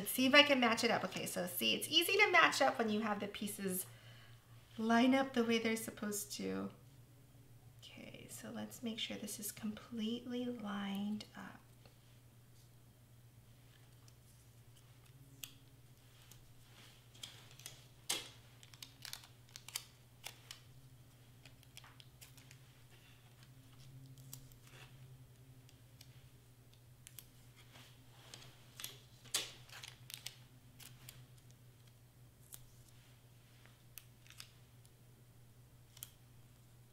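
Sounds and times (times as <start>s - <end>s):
steady low hum: 0.0s - 36.9s
cardstock crackling and tapping: 17.1s - 20.7s, 28.3s - 32.6s.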